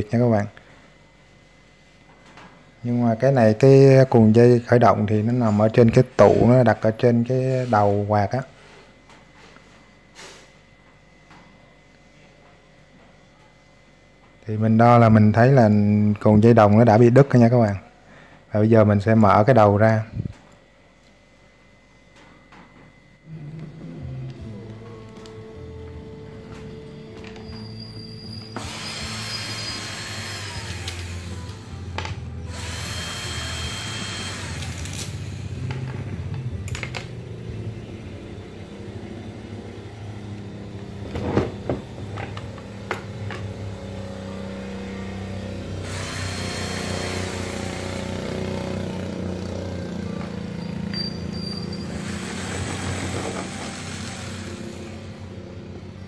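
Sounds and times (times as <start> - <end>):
drill driver removing screws: 28.6 - 31.6, 52.0 - 55.0.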